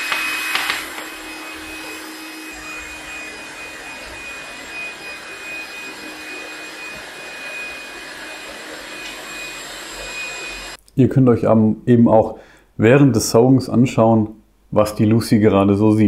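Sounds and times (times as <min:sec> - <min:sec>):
robot vacuum cleaner running: 0:00.0 - 0:10.8.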